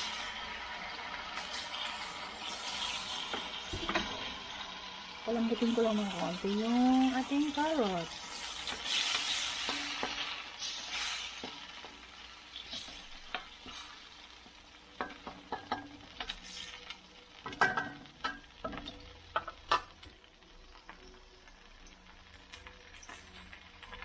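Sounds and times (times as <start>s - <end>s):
soft sizzle: 0.0s - 24.0s
wooden spoon scraping a wok: 1.3s - 4.6s, 8.1s - 17.0s
spoon knocking against pan: 15.0s - 16.0s, 17.5s - 19.9s.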